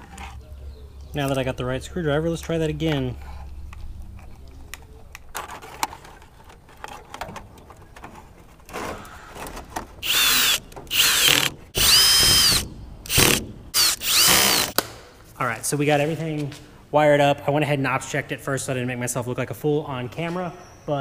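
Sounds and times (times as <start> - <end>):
cordless drill driving screws: 10.0 - 14.8.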